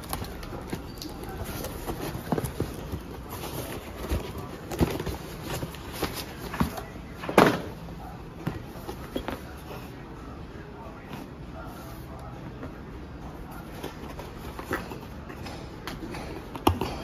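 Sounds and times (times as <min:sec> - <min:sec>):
cardboard scraping and rustling: 0:00.0 - 0:07.8.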